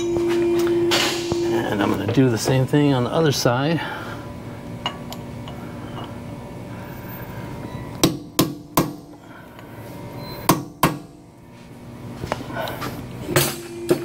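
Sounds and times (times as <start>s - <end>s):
hammer striking metal chisel: 8.0s - 9.0s, 10.5s - 11.1s.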